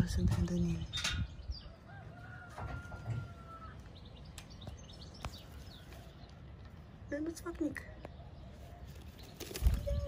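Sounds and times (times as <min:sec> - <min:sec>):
small birds chirping: 0:00.0 - 0:02.5, 0:03.2 - 0:10.0
rooster crowing: 0:01.7 - 0:03.9.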